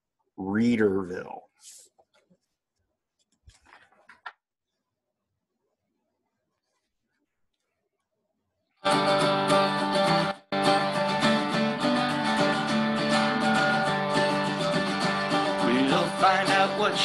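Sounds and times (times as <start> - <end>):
strummed acoustic guitar: 8.8 - 17.0.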